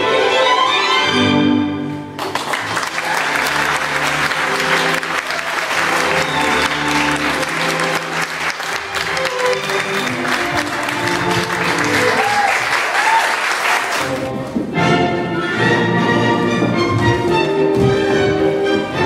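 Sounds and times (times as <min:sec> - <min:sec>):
orchestral ballet music with strings: 0:00.0 - 0:19.0
audience applause: 0:02.2 - 0:14.3.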